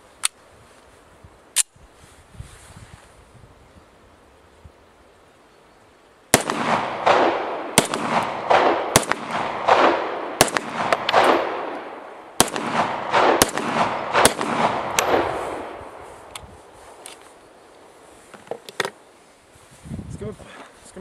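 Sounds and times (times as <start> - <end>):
pistol shots with echo: 6.3 - 15.9.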